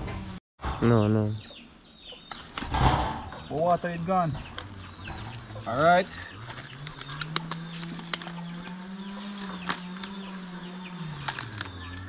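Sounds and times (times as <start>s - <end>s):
birds chirping: 0.6s - 12.0s
sharp clicks: 6.8s - 8.8s
plastic bag crinkling: 11.2s - 11.9s.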